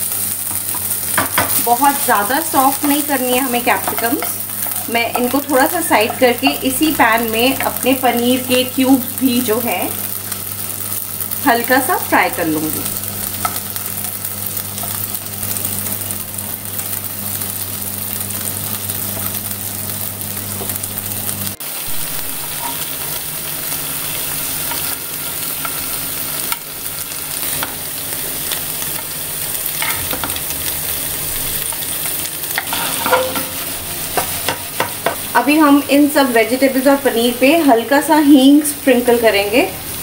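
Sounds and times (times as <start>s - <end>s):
paneer and peppers sizzling in pan: 0.0s - 40.0s
spatula scraping a pan: 32.6s - 34.3s.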